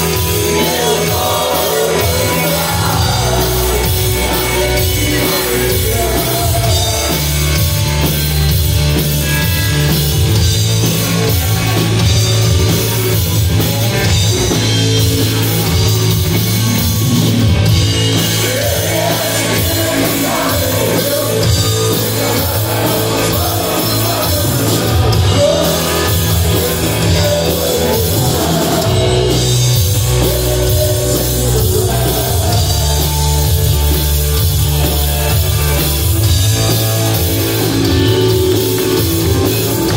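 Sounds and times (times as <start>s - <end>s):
lead vocal singing: 0.0s - 8.1s, 17.0s - 36.0s
live rock band playing: 0.0s - 39.9s.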